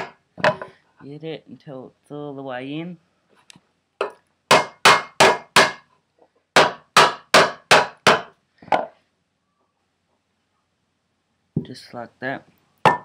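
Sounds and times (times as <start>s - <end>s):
rubber mallet striking wood block: 0.0s - 0.7s, 4.0s - 5.9s, 6.6s - 8.9s.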